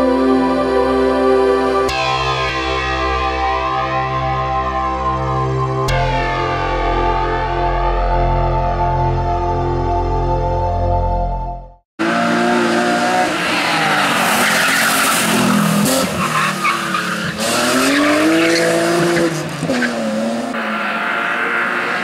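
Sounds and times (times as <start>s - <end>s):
car engine revving: 12.0s - 22.0s
tyres squealing: 13.4s - 20.0s.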